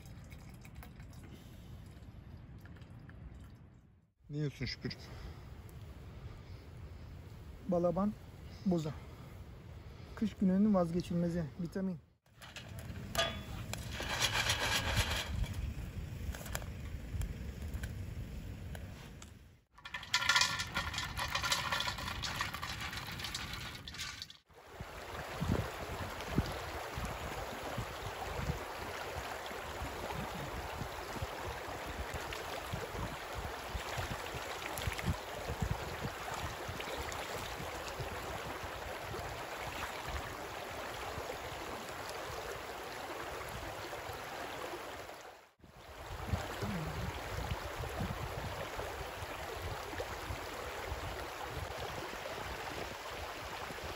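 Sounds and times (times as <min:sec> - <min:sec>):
stream running over rocks: 0:12.3 - 0:15.7, 0:19.8 - 0:53.9.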